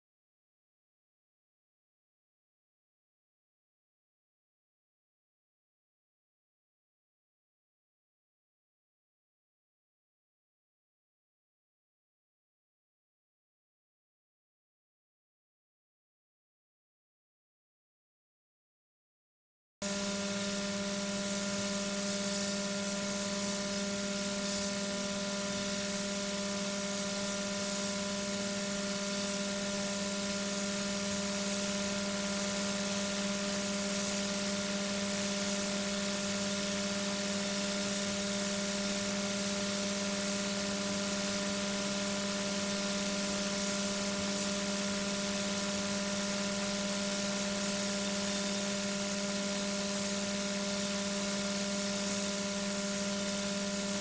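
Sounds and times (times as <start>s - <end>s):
electrical hum with tones: 19.8s - 54.0s.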